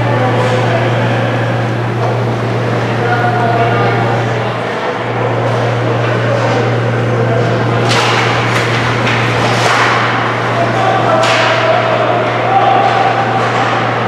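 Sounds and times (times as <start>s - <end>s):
low arena hum: 0.0s - 14.0s
hockey sticks clacking: 7.4s - 14.0s.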